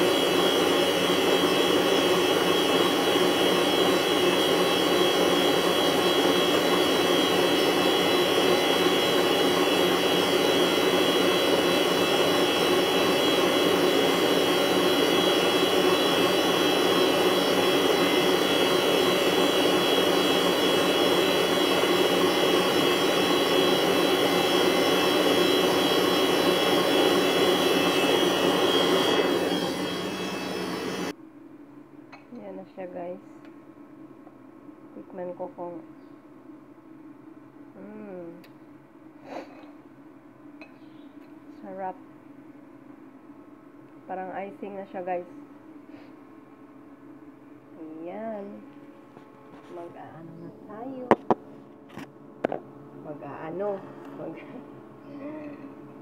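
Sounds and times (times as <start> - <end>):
electric hand mixer whipping cream: 0.0 - 31.1.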